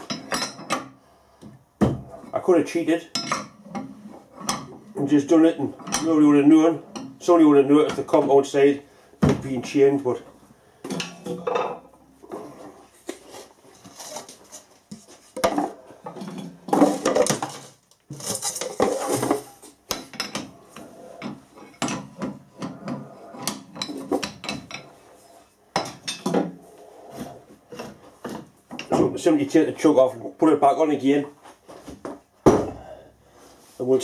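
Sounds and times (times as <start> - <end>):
metal clanks and clatters: 15.4 - 25.0.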